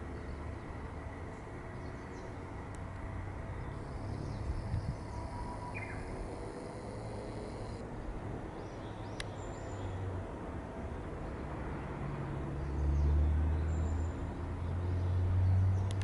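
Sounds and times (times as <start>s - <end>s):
bird chirps: 3.6s - 7.8s.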